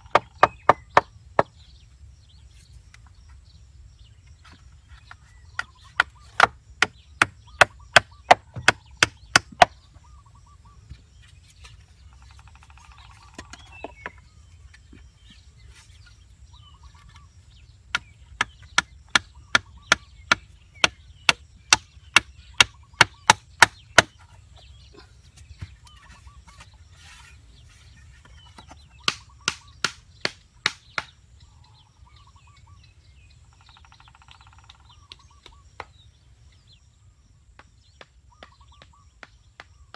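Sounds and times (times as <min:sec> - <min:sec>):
stick knocking bamboo poles: 0:00.0 - 0:01.6, 0:04.4 - 0:09.8, 0:17.9 - 0:24.3, 0:28.2 - 0:31.2.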